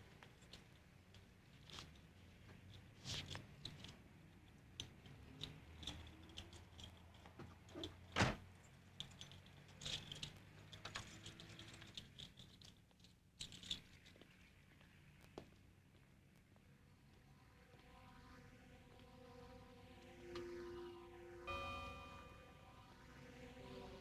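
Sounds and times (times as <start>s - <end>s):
keys clicking and rattling: 0.3s - 8.0s, 8.6s - 14.1s
low steady hum: 15.6s - 24.0s.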